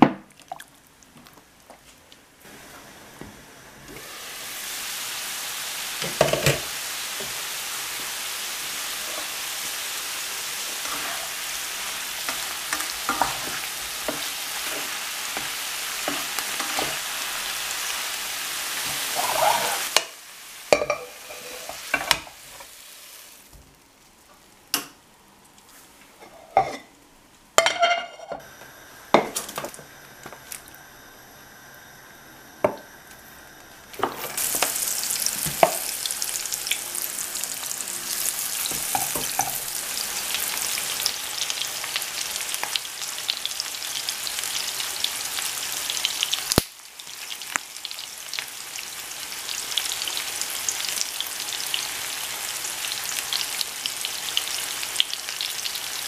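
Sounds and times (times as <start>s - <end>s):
vegetables sizzling in a pan: 2.4s - 24.9s, 27.6s - 56.0s
utensils clinking against pan: 12.3s - 17.0s, 20.7s - 22.7s, 27.6s - 28.4s, 38.7s - 39.6s.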